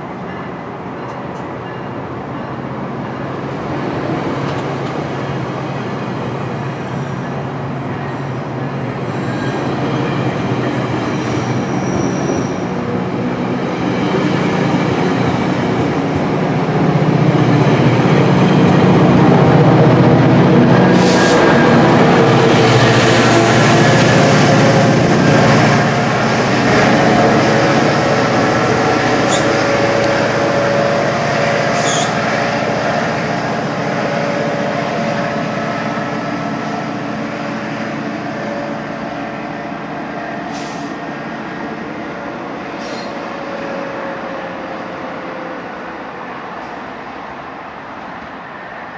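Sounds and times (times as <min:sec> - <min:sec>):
train rolling past: 0:00.0 - 0:48.9
wheels squealing on rails: 0:06.2 - 0:12.9, 0:26.6 - 0:31.0, 0:31.6 - 0:32.7, 0:42.7 - 0:43.3.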